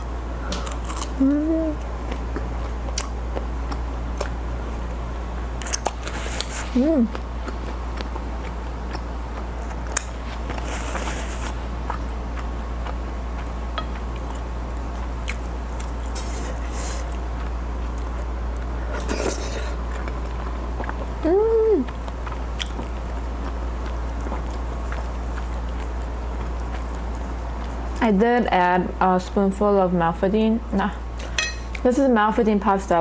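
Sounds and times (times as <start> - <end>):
steady low hum: 0.0 - 33.0
chewing: 0.5 - 4.4, 5.6 - 21.2, 21.8 - 28.0.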